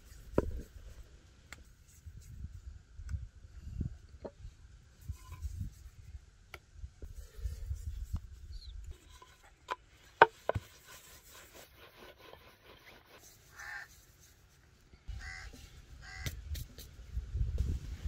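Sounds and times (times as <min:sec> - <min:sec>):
bird calls: 0:15.1 - 0:16.4.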